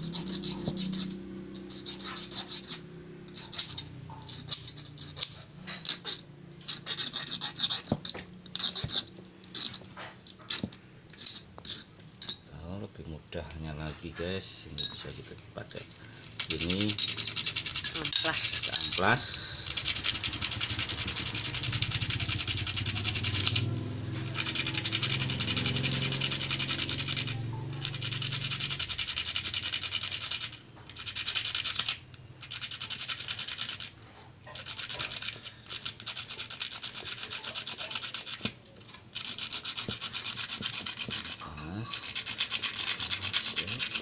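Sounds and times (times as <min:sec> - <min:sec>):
metal rod rasping on sandpaper: 0:00.0 - 0:09.8, 0:16.4 - 0:23.6, 0:34.5 - 0:44.0.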